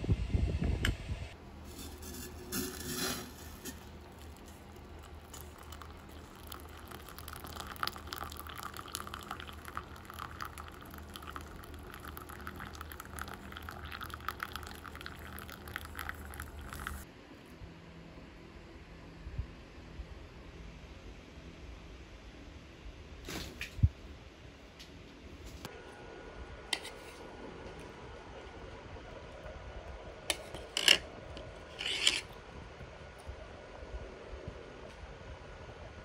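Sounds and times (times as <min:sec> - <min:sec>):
hot water pouring into mug: 0:02.3 - 0:17.1.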